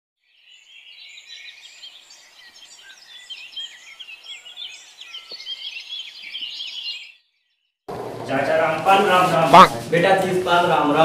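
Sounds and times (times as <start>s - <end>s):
small birds chirping: 0.2s - 7.8s.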